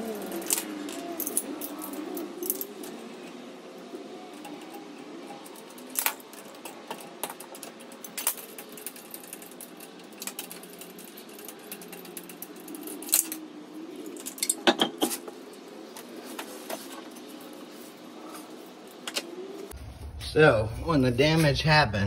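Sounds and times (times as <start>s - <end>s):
steady hum: 15.3s - 22.0s.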